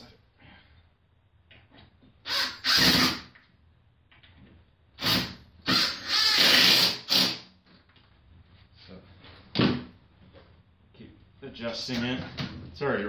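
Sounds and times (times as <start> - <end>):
impact driver driving screw into wood: 2.3 - 3.4, 5.0 - 7.4.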